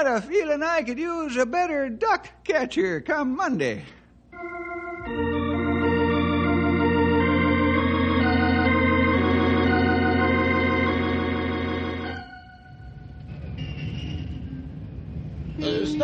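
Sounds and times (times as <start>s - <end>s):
organ playing held chords: 4.3s - 13.4s
steady organ bass note: 4.4s - 13.3s.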